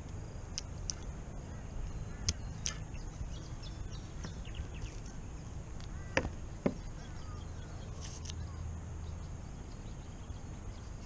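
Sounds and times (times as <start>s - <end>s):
low outdoor rumble: 0.0s - 11.0s
faint bird chirps: 1.0s - 11.0s.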